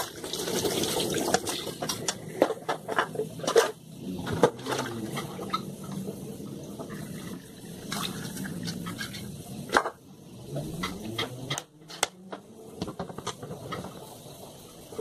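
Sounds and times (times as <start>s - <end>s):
dishes clattering together: 1.3s - 6.0s
sponge scrubbing a pan: 6.8s - 9.7s.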